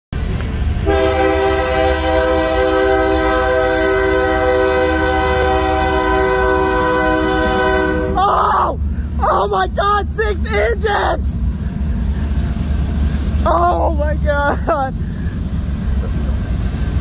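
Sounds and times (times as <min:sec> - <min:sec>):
low rumble of passing train: 0:00.1 - 0:17.0
train air horn blast: 0:00.8 - 0:08.3.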